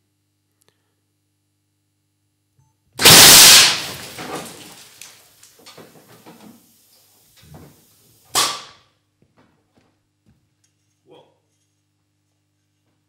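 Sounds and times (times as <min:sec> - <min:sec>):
sharp air hiss: 0:03.0 - 0:03.9
air cannon shot echo: 0:03.0 - 0:04.0
debris knocks and clatters: 0:03.0 - 0:06.6.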